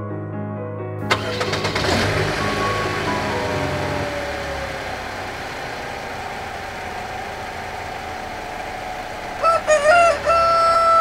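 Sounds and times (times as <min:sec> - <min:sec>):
rooster crowing: 0:09.3 - 0:11.0.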